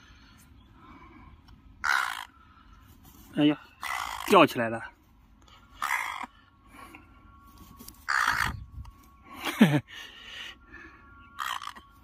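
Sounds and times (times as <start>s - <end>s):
crow cawing: 1.8s - 2.4s, 3.8s - 4.4s, 5.8s - 6.4s, 8.1s - 8.6s, 11.3s - 11.9s
person laughing: 9.3s - 10.1s.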